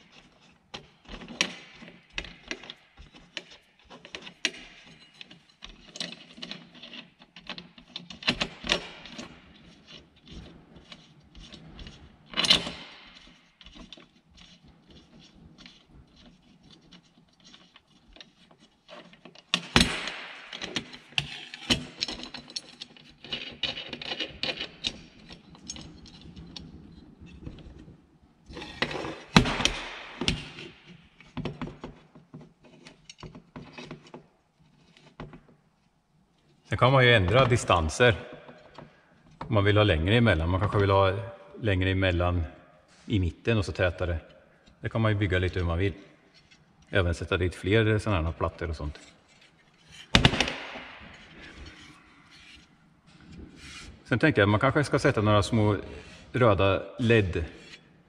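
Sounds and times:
steel plates clinking and scraping: 0.0s - 27.8s.

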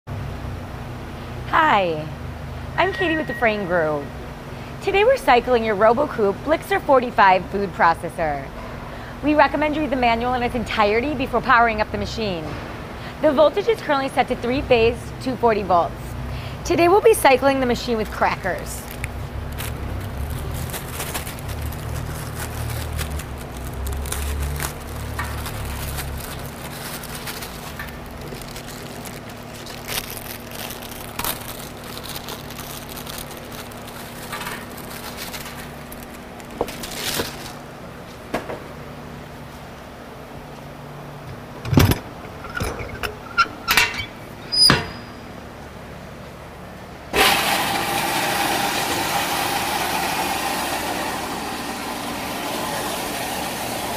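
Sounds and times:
food chopper motor whirring: 47.2s - 53.9s.

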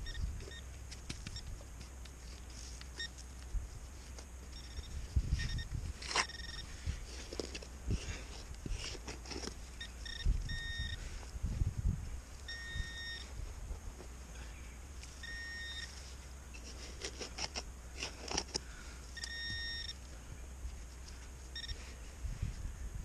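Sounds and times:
metal detector beeps: 0.0s - 1.6s, 3.0s - 3.2s, 4.5s - 6.7s, 9.7s - 11.1s, 12.5s - 13.3s, 15.2s - 16.0s, 19.1s - 20.0s, 21.5s - 21.9s.

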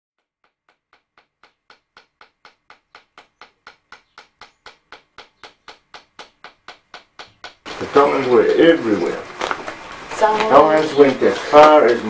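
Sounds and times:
wooden mallet tapping tattoo comb: 0.2s - 8.8s, 11.1s - 12.0s.

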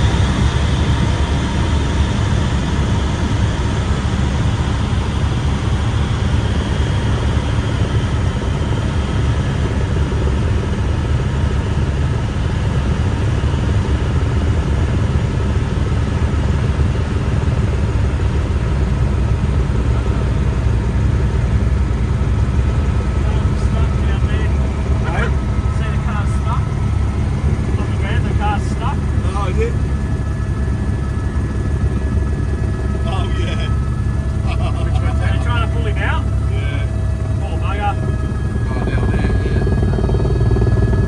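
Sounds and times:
aircraft cabin engine drone: 0.0s - 41.0s
faint steady whine: 19.1s - 41.0s.

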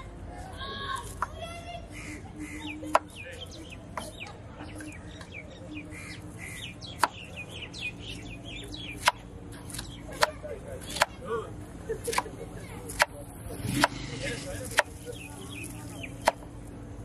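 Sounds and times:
birds chirping: 0.0s - 17.0s
steady low hum: 0.0s - 17.0s
cleaver chopping on wooden block: 7.0s - 7.2s, 9.0s - 11.2s, 12.9s - 14.0s, 16.2s - 16.4s.

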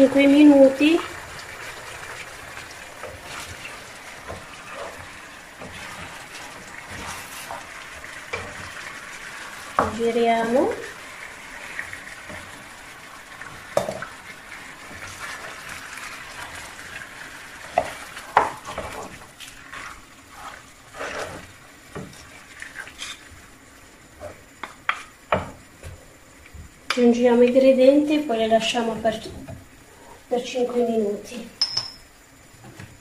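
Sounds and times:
onions sizzling in frying pan: 0.0s - 31.6s
wooden spatula scraping pan: 3.0s - 7.7s, 17.6s - 23.3s.

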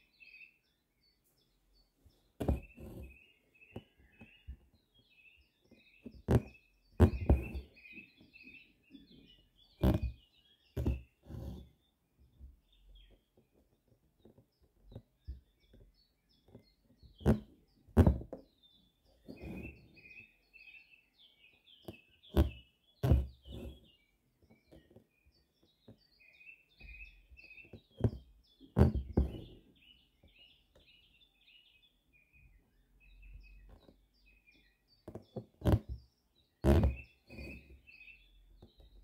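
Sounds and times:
small birds chirping: 0.0s - 39.0s
needle punching through fabric: 2.4s - 3.1s, 6.0s - 7.7s, 9.8s - 10.2s, 10.8s - 11.6s, 17.2s - 18.4s, 22.3s - 23.8s, 27.7s - 29.5s, 35.0s - 36.0s, 36.6s - 37.6s
thread drawn through fabric: 2.4s - 3.1s, 22.3s - 23.8s.

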